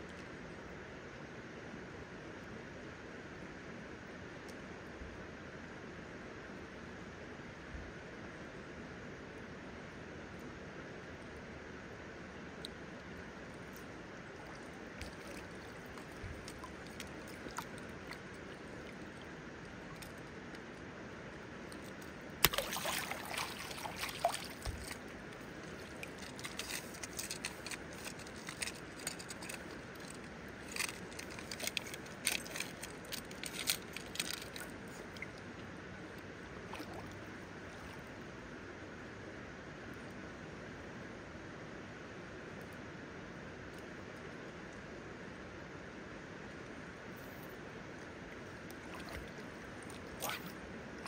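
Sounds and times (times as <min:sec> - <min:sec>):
shallow river flowing: 0:00.0 - 0:40.8, 0:43.2 - 0:51.0
water splashing: 0:13.6 - 0:20.7, 0:21.6 - 0:38.0, 0:48.5 - 0:51.0
water dripping off a net: 0:14.4 - 0:20.2, 0:21.7 - 0:35.4, 0:48.7 - 0:50.6.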